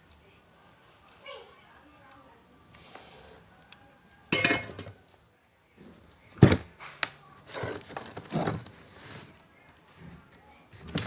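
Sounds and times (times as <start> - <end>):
scraping and clatter: 7.4 - 9.3.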